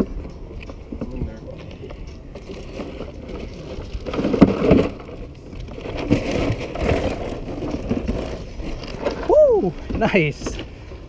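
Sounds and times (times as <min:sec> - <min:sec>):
knocks and scraping on cooler: 0:02.3 - 0:10.7.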